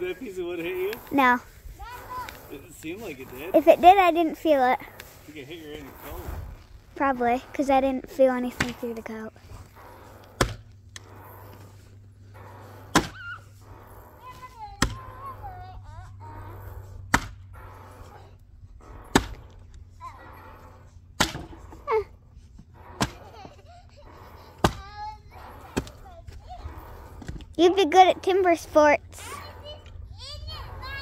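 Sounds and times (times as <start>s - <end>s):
axe striking wood: 10.4s - 10.6s, 12.9s - 13.2s, 17.1s - 17.4s, 19.1s - 19.4s, 21.2s - 21.6s.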